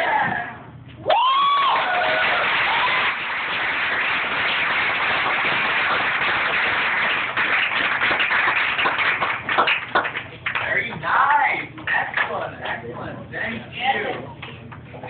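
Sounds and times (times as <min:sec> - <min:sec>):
whooping shout: 0:00.0 - 0:03.2
audience clapping and cheering: 0:01.0 - 0:12.8.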